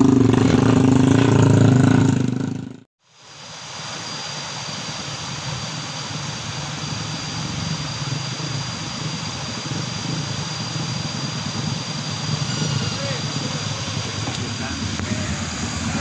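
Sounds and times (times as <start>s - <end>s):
river rushing over a ford: 3.1s - 16.0s
thin steady high tone: 3.9s - 16.0s.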